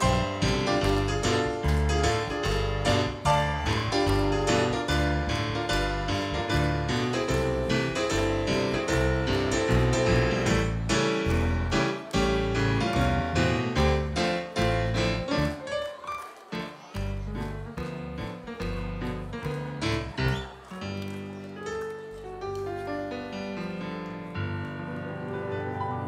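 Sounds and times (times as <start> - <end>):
double bass line: 0.0 - 15.1
swing band playing: 0.0 - 15.4.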